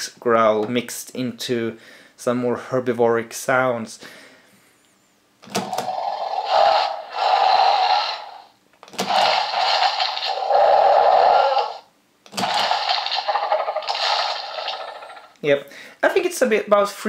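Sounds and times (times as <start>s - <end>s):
electronic dinosaur roar: 5.6s - 15.4s.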